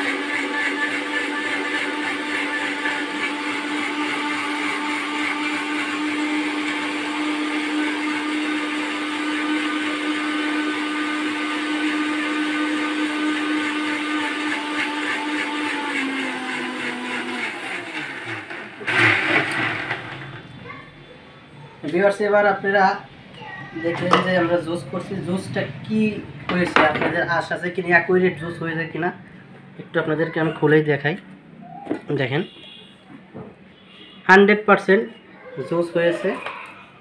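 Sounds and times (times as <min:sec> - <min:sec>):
mixer grinder running: 0:00.0 - 0:20.7, 0:23.7 - 0:29.9.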